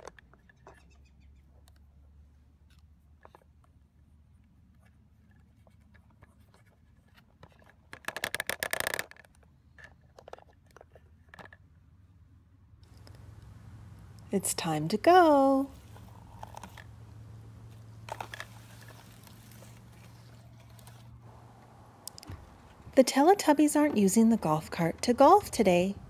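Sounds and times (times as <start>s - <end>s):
small plastic clicks and scrapes: 4.7s - 11.6s, 15.7s - 21.2s.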